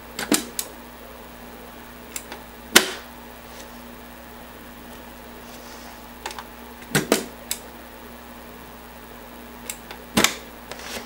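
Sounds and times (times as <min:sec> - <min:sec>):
floppy drive eject clicking: 0:00.2 - 0:00.7, 0:09.6 - 0:11.0.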